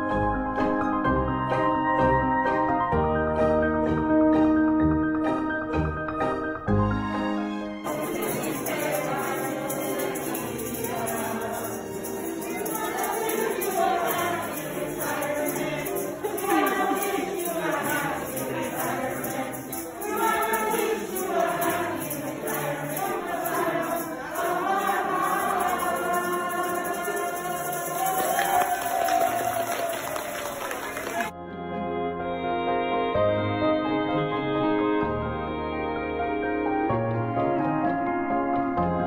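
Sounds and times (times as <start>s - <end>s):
group of people singing: 7.9s - 29.7s.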